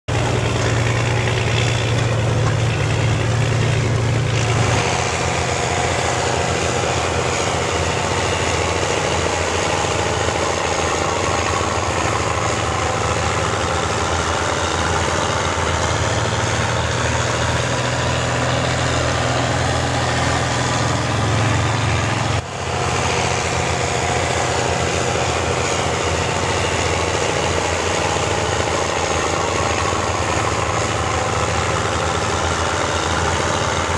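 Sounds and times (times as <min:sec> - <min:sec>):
tractor diesel engines running: 0:00.0 - 0:33.9.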